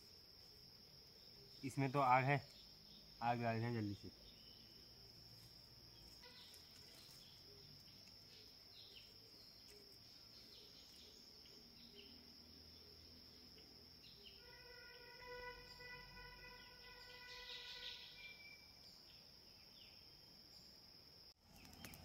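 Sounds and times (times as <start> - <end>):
insect drone: 0.0 - 22.0
bird chirps: 1.2 - 5.0, 5.9 - 20.1.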